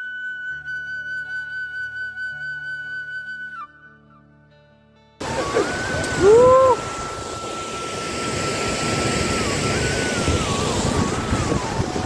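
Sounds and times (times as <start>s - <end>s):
loud rising and falling cry: 5.2s - 12.0s
rushing river and waterfall: 5.2s - 12.0s
thin whistling tone: 5.2s - 12.0s
wind on microphone: 5.2s - 12.0s.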